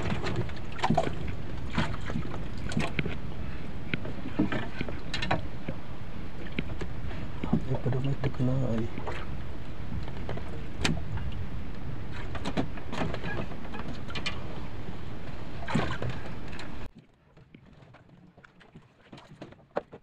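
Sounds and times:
wind noise on microphone: 0.0 - 16.9.

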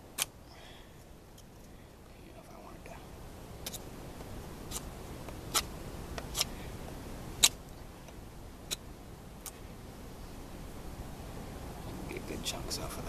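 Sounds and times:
knife carving wooden stick: 0.0 - 0.4, 3.6 - 3.9, 4.7 - 6.6, 7.4 - 7.6.

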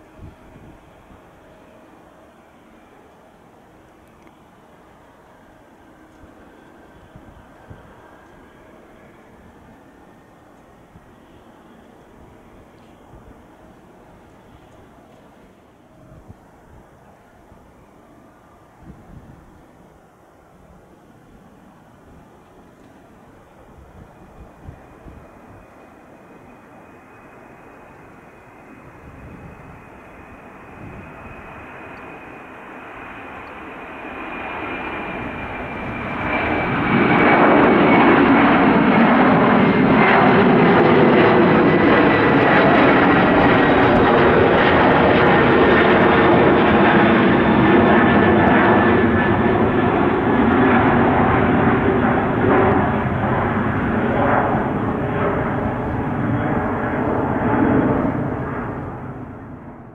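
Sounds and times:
high jet whine: 0.0 - 59.9
jet engines roaring at takeoff: 0.0 - 59.9.

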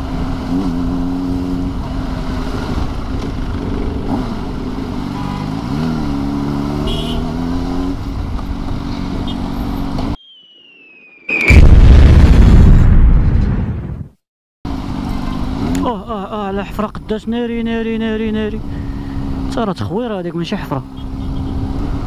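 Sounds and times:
motorcycle engine at low revs: 0.0 - 10.2
falling whistle: 10.2 - 11.7.

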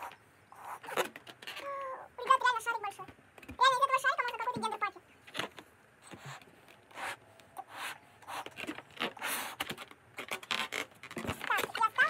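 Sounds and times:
breaths blown into a balloon: 6.0 - 9.7.

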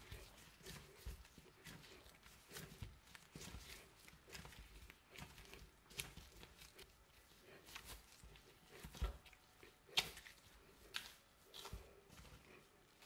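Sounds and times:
dough kneading squishes: 0.0 - 13.0.

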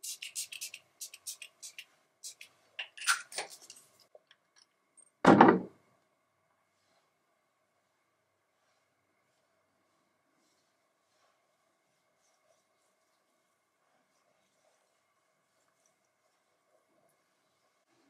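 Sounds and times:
loud thump: 5.3 - 5.7.

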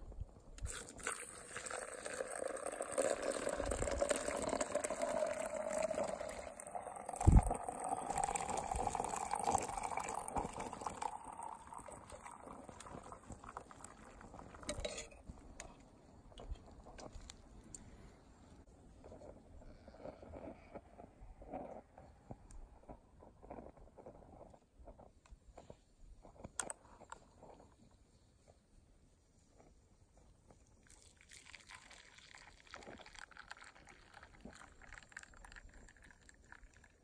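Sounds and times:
liquid pouring into container: 0.6 - 15.1, 30.8 - 37.0.

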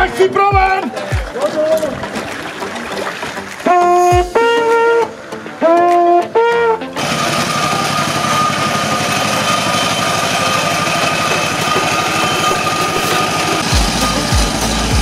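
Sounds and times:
brass horn blast: 3.6 - 11.0
pump engine running with whine: 7.0 - 15.0.

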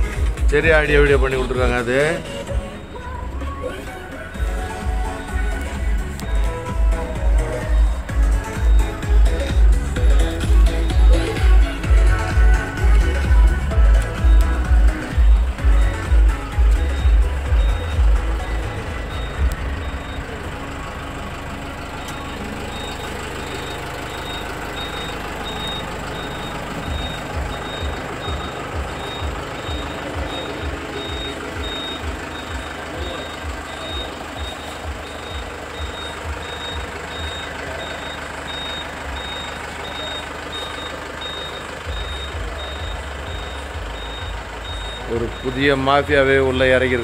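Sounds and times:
reversing alarm beeping: 4.0 - 47.0
low rapid thumping: 4.4 - 20.5.

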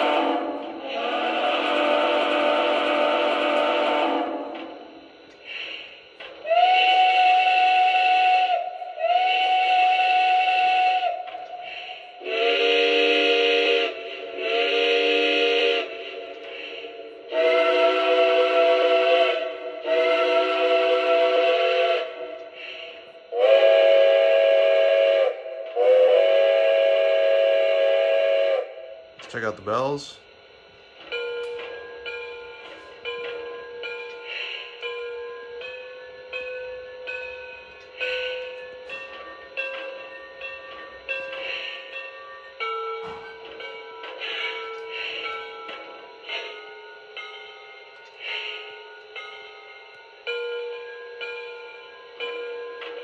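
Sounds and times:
recorded steam whistles: 0.0 - 53.0.

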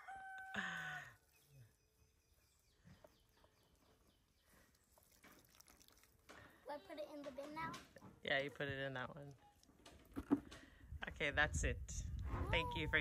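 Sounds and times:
small birds chirping: 1.2 - 5.5.

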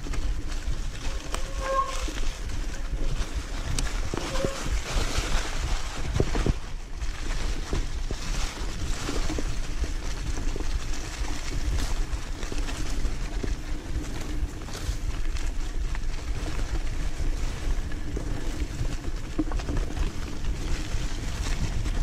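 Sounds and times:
wind rumble on microphone: 0.0 - 22.0.

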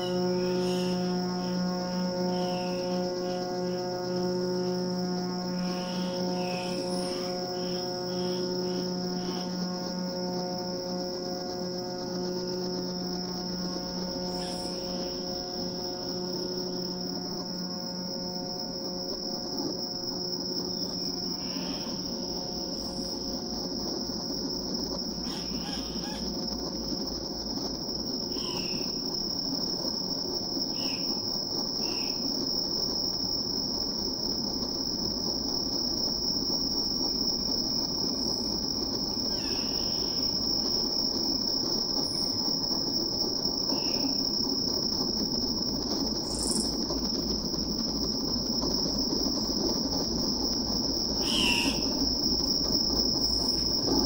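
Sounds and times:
steady high-pitched tone: 0.0 - 54.0.

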